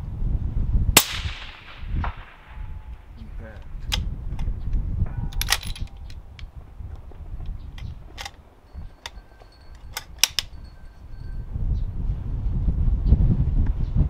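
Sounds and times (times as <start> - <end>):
wind rumble on microphone: 0.0 - 14.0
rifle bolt metallic clicks: 5.4 - 6.5, 7.8 - 8.4, 9.8 - 10.5.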